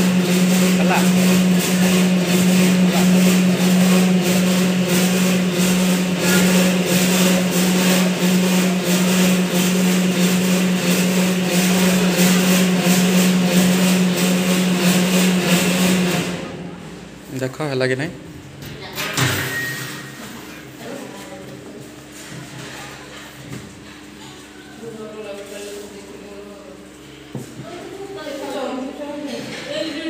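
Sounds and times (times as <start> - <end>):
machinery humming and rattling: 0.0 - 21.1.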